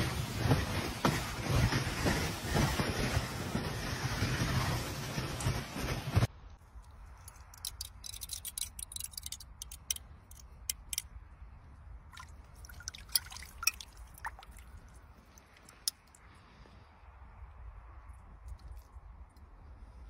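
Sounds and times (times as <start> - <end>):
ice and water clicking: 7.2 - 11.1, 12.1 - 16.2.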